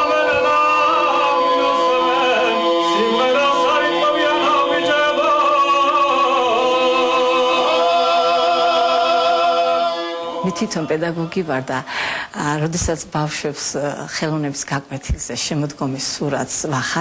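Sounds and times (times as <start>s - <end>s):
men singing polyphonic song: 0.0s - 11.8s.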